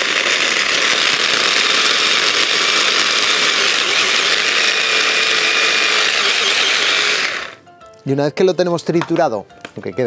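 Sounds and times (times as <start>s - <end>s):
stick blender grinding cheese: 0.0s - 7.6s.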